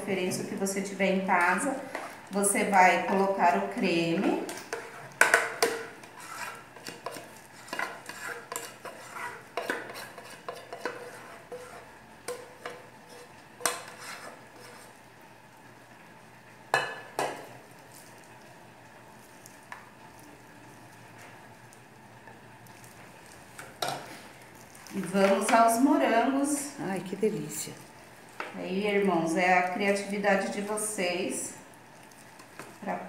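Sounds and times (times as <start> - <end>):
metal spoon scraping saucepan: 4.5 - 14.9.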